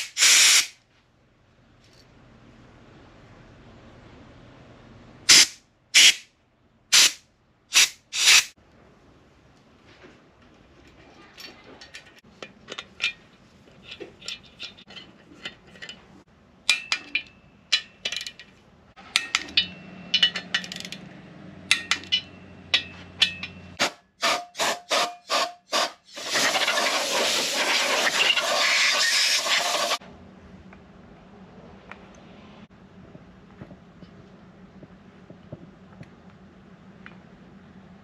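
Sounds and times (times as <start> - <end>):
loud steady hiss: 0.0 - 0.8, 6.9 - 8.6
metal tools clinking: 10.8 - 21.1, 21.7 - 23.8.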